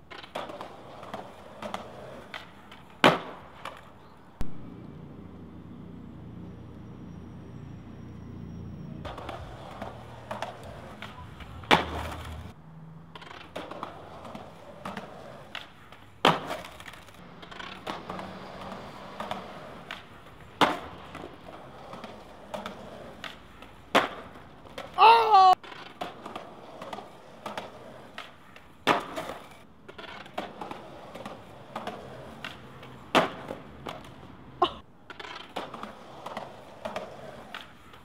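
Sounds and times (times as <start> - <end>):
skateboard clicks: 0.0 - 4.6, 9.0 - 34.3, 35.0 - 38.0
skateboard pops and landing slaps: 0.0 - 4.6, 9.1 - 25.0, 25.6 - 34.3, 35.0 - 38.0
skateboard wheels rolling on concrete: 0.0 - 38.0
wavering squeal: 6.0 - 10.1.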